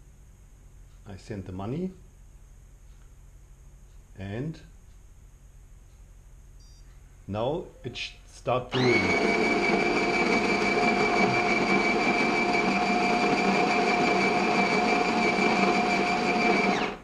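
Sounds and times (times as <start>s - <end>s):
coffee grinder whirring: 8.7s - 17.0s.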